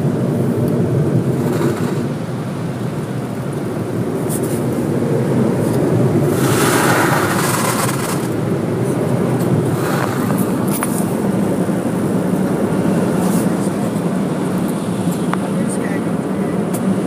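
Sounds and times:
air-dryer blowers rushing: 0:00.0 - 0:17.0
hiss of air sweeping over car: 0:06.2 - 0:08.4, 0:09.7 - 0:11.1.

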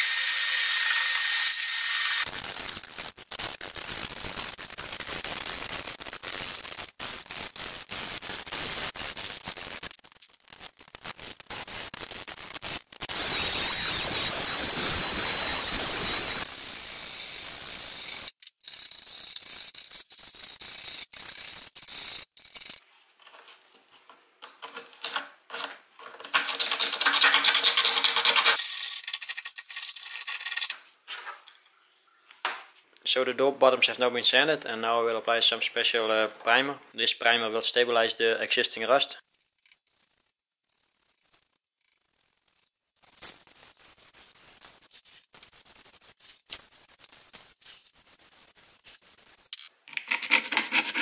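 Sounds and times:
hand-sanding steel: 0:50.1 - 0:51.0.

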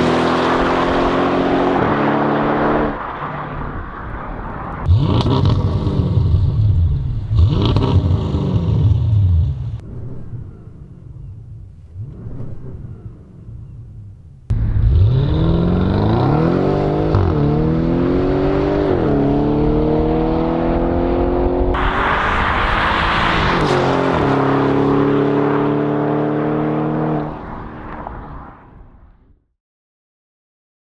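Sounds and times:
car engine accelerating hard: 0:00.0 - 0:03.6, 0:04.8 - 0:09.8, 0:14.5 - 0:27.9.

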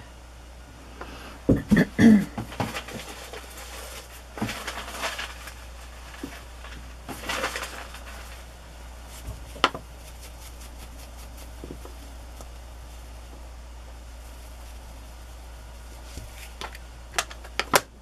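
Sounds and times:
paper rustling and rubbing: 0:02.5 - 0:13.3, 0:14.0 - 0:16.8.

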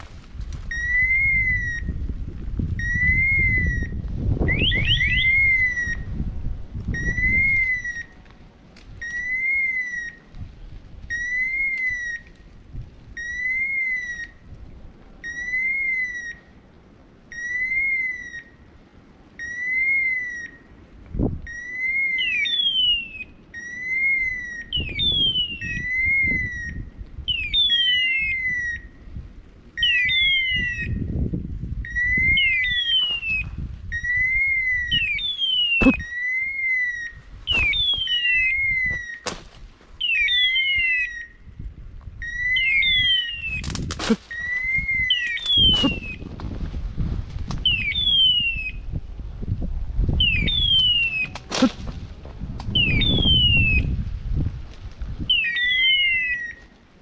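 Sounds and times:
brush rustling: 0:00.0 - 0:00.7, 0:32.9 - 0:33.9, 0:35.7 - 0:36.1, 0:37.2 - 0:40.2, 0:43.3 - 0:47.8, 0:50.8 - 0:52.8
beeper collar beeping: 0:00.7 - 0:01.9, 0:02.8 - 0:06.1, 0:06.9 - 0:08.2, 0:09.0 - 0:10.2, 0:11.1 - 0:12.4, 0:13.1 - 0:14.4, 0:15.2 - 0:16.5, 0:17.3 - 0:18.6, 0:19.4 - 0:20.6, 0:21.5 - 0:28.9, 0:40.0 - 0:41.4, 0:42.2 - 0:43.6, 0:44.3 - 0:46.2, 0:55.3 - 0:56.6
falling electronic chirp: 0:31.9 - 0:39.2, 0:40.0 - 0:41.4, 0:44.3 - 0:46.2, 0:55.3 - 0:56.6
twigs snapping: 0:39.2 - 0:39.9, 0:43.6 - 0:46.5, 0:51.2 - 0:52.8.

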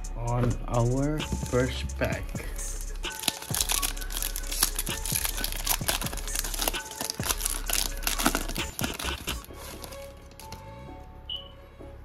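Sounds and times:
plastic wrapper crinkling: 0:03.1 - 0:10.6.

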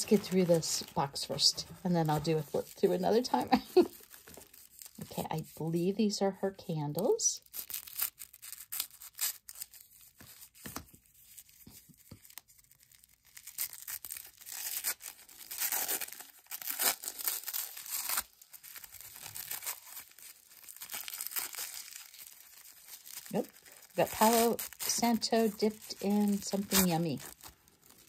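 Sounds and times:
tissue paper tearing and crinkling: 0:00.0 - 0:05.5, 0:07.0 - 0:28.0
scissors snipping tissue paper: 0:15.5 - 0:28.0.

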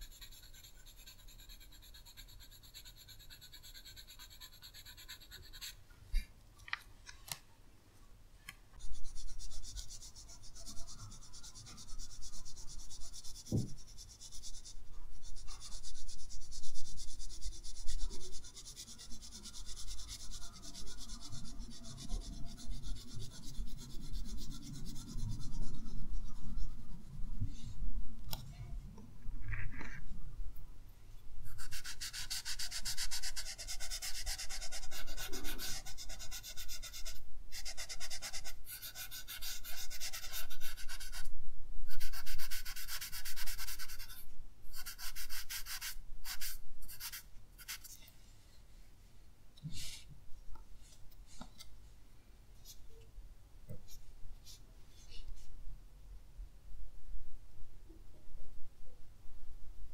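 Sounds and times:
pencil shading on paper: 0:00.0 - 0:05.8, 0:08.8 - 0:27.3, 0:31.4 - 0:41.3, 0:41.9 - 0:47.9.

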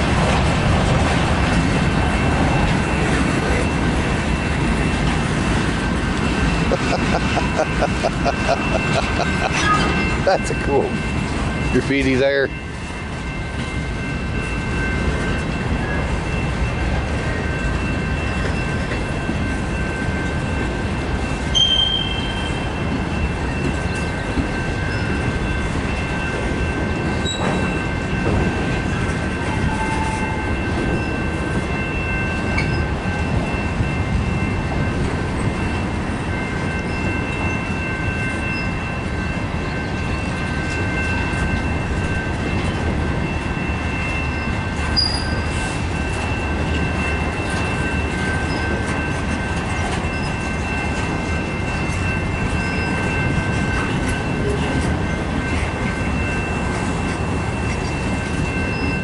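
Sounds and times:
train wheels rumbling on rail: 0:00.0 - 0:59.0
high-pitched wheel squeal: 0:09.5 - 0:10.1, 0:21.6 - 0:22.6, 0:27.2 - 0:27.7, 0:45.0 - 0:45.5.

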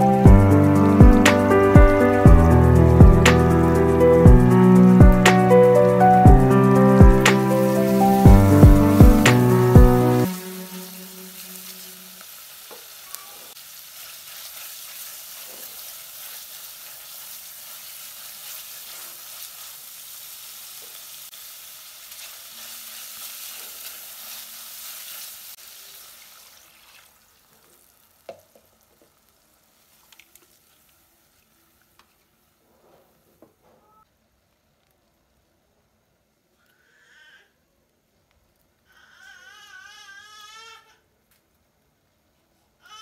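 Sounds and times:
food sizzling in butter: 0:00.0 - 0:32.0.

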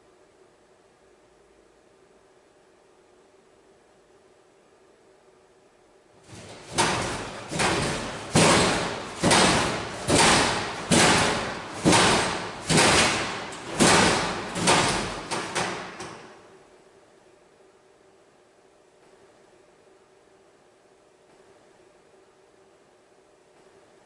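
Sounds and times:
heavy bangs echoing in corridor: 0:06.2 - 0:16.6.

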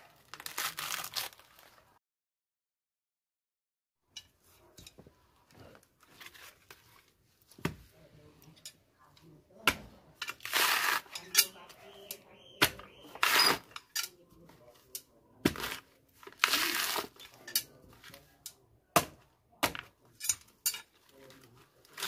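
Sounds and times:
coconut husk fibres rustling: 0:00.0 - 0:02.0, 0:10.2 - 0:13.8, 0:15.4 - 0:18.4.

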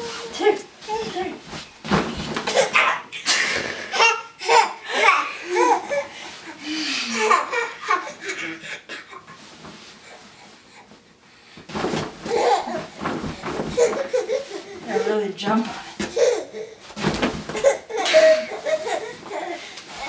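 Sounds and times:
baby laughing: 0:02.5 - 0:06.1, 0:07.0 - 0:09.3, 0:12.3 - 0:13.0, 0:13.7 - 0:15.1, 0:16.0 - 0:16.8, 0:17.6 - 0:19.6.

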